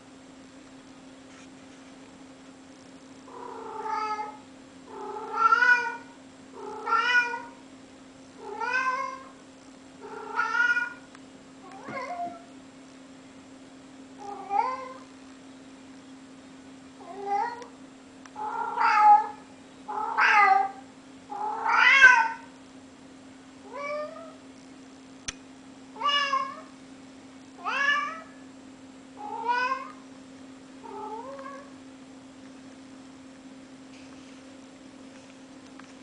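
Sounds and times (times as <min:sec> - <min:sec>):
steady low hum: 0:00.0 - 0:36.0
cat meowing: 0:03.6 - 0:04.4, 0:05.2 - 0:06.1, 0:06.7 - 0:07.6, 0:10.1 - 0:11.0, 0:18.4 - 0:20.8, 0:21.4 - 0:22.5, 0:26.0 - 0:26.7, 0:27.6 - 0:28.4, 0:29.2 - 0:30.0.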